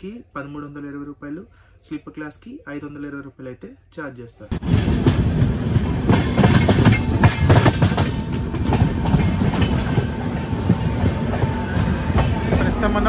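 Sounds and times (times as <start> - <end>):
train wheels clattering over rail joints: 4.5 - 12.8
train rumble: 4.5 - 13.0.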